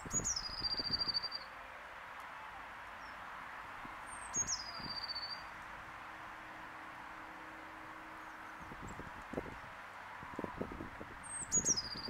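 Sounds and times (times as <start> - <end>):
blue tit singing: 0.1 - 1.4, 4.2 - 5.5, 11.2 - 12.0.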